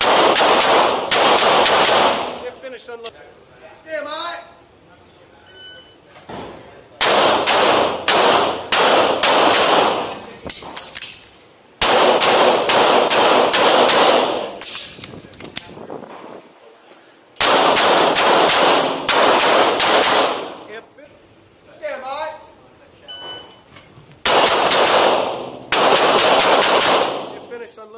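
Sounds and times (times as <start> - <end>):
rapid pistol shots echoing indoors: 0.0 - 2.5, 7.0 - 11.0, 11.8 - 14.9, 17.4 - 20.7, 24.2 - 27.5.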